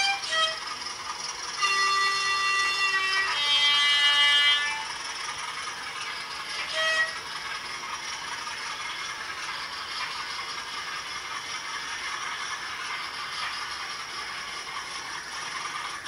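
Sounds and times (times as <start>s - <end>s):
model train rattle and whir: 0.0s - 16.0s
short train horn toot: 1.6s - 4.9s, 6.6s - 7.2s.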